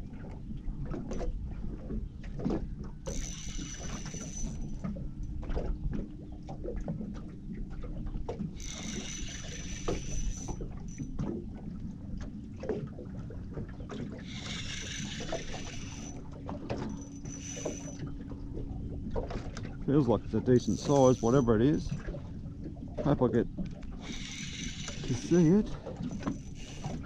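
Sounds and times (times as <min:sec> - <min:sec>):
wind and water rumble: 0:00.0 - 0:27.0
fishing reel whirring: 0:03.0 - 0:05.2, 0:08.5 - 0:11.3, 0:14.0 - 0:18.3, 0:20.5 - 0:21.8, 0:23.8 - 0:27.0.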